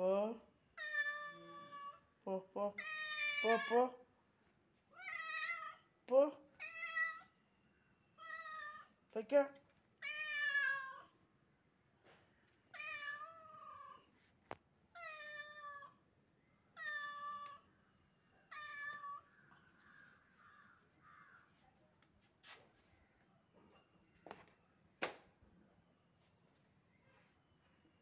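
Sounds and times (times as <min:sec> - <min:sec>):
cat meowing: 0:00.8 - 0:02.0, 0:02.8 - 0:03.8, 0:04.9 - 0:05.9, 0:10.0 - 0:11.1, 0:12.7 - 0:14.1, 0:15.0 - 0:16.0, 0:16.8 - 0:17.7, 0:18.5 - 0:19.4.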